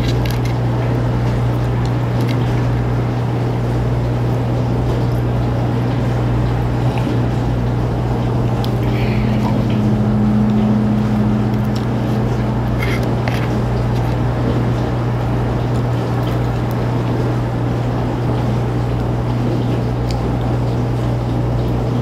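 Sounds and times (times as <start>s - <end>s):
low mechanical hum: 0.0s - 22.0s
higher tone: 8.8s - 12.8s.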